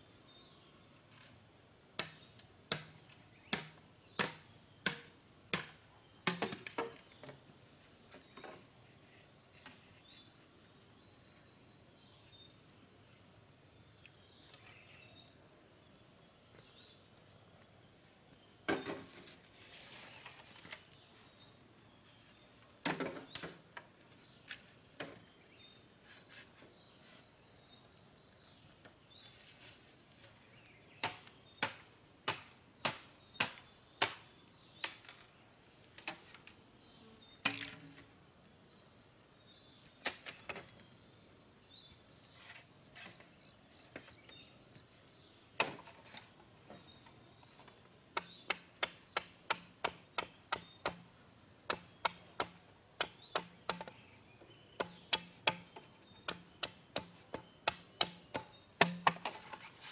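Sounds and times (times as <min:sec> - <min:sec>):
bamboo being chopped: 0:02.0 - 0:07.0, 0:18.7 - 0:19.3, 0:31.0 - 0:35.3, 0:37.4 - 0:37.8, 0:45.6 - 0:46.2, 0:48.2 - 0:54.1, 0:54.8 - 0:59.7.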